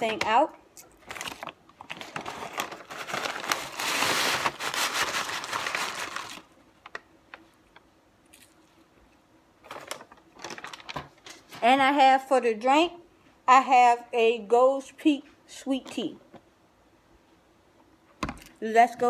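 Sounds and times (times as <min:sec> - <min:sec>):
paper bag rustling and crinkling: 0:01.0 - 0:07.0, 0:09.6 - 0:11.6.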